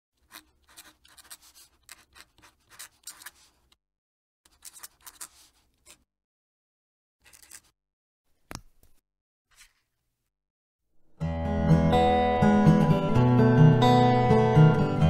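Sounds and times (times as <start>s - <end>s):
pen nib scratching paper: 0.2s - 3.8s, 4.5s - 6.0s.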